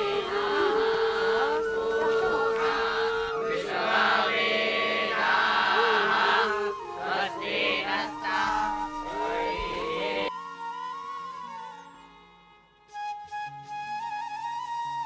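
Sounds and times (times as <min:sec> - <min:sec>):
held droning note: 0:00.0 - 0:10.3
voice wavering: 0:00.0 - 0:10.3
young men chanting in unison: 0:00.0 - 0:10.3.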